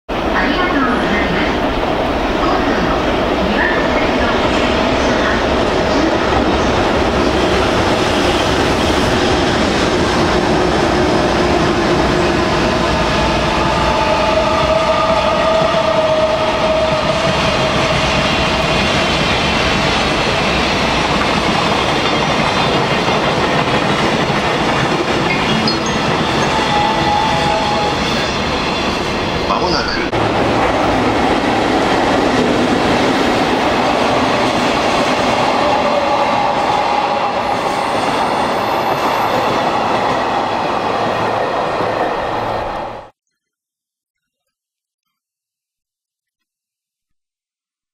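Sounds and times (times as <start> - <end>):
train wheels rumbling over rails: 1.2 - 43.0.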